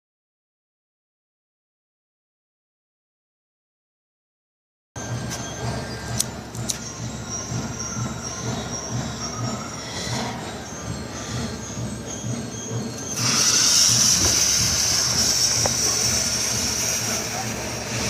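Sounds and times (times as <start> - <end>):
firework hissing squeal: 13.0 - 18.0.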